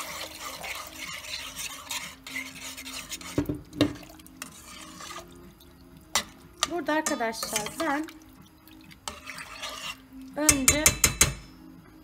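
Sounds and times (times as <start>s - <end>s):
spoon stirring food in pot: 0.0s - 11.5s
spoon knocking against pot: 10.5s - 11.4s.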